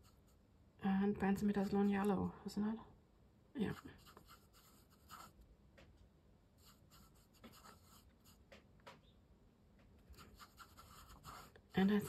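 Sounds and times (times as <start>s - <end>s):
brush strokes on paper: 0.0s - 0.4s, 3.6s - 5.4s, 6.6s - 8.4s, 10.1s - 12.0s.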